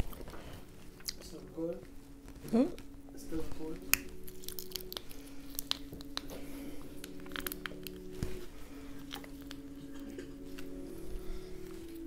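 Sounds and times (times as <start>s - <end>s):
faint low tones: 0.0s - 12.0s
crab shells cracking: 3.8s - 10.7s.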